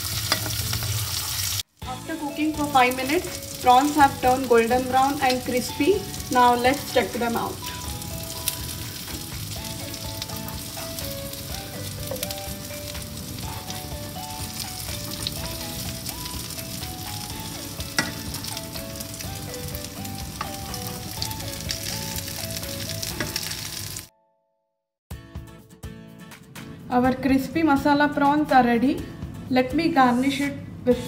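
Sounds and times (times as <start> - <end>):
prawns sizzling in oil: 0.0 - 24.1.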